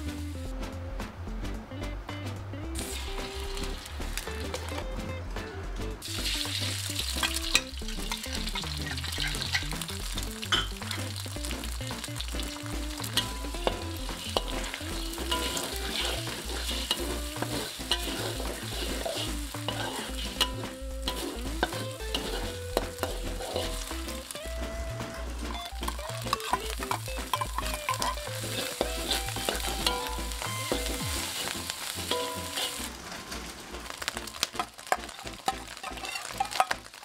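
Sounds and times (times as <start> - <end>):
eggs sizzling in a wok: 2.6 - 5.1, 6.0 - 37.0
spatula scraping a wok: 6.1 - 11.3, 11.9 - 24.4, 25.7 - 33.4.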